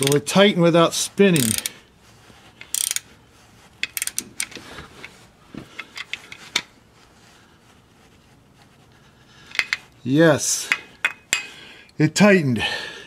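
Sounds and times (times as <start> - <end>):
ratchet wrench clicking: 0.0 - 0.3, 1.4 - 1.7, 2.6 - 3.1, 3.8 - 4.6.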